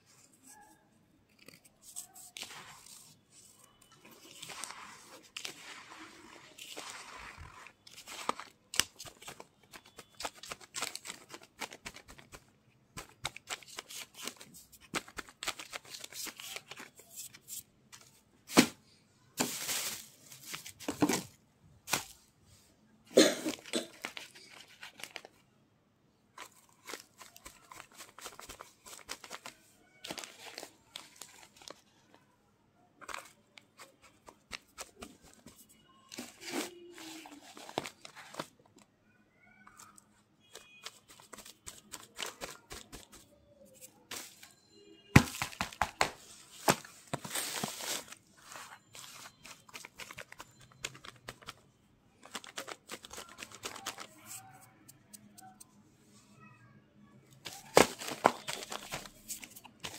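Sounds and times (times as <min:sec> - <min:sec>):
hand crunching powder clumps: 0:04.3 - 0:08.4
plastic sheeting crinkling: 0:19.4 - 0:20.9.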